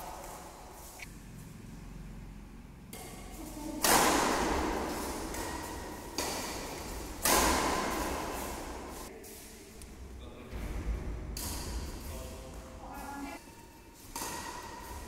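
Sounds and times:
racquet hitting shuttlecock: 0:02.9 - 0:09.1, 0:11.3 - 0:12.0, 0:13.5 - 0:15.0
echo in a hall: 0:03.1 - 0:13.5.

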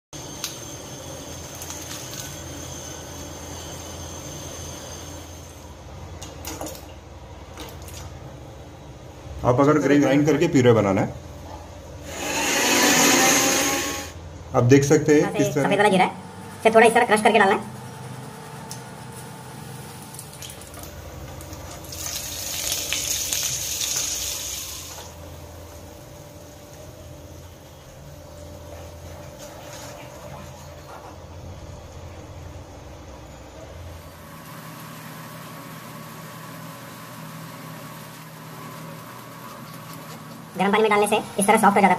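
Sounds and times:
kitchen background hum: 0:00.1 - 0:41.9
seeds sizzling in hot oil: 0:21.7 - 0:25.2.

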